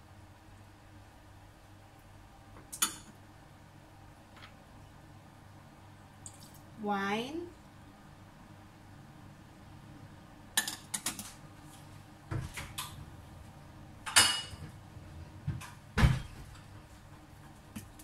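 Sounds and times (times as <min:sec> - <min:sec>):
kitchenware clinking: 0:10.6 - 0:11.3, 0:14.0 - 0:14.6.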